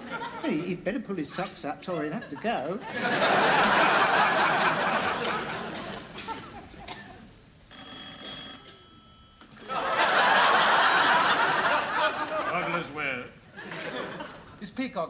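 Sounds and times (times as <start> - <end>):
studio audience laughter: 0.0 - 0.6, 2.0 - 6.9, 9.7 - 13.0, 13.6 - 14.6
telephone ringing: 7.7 - 11.0.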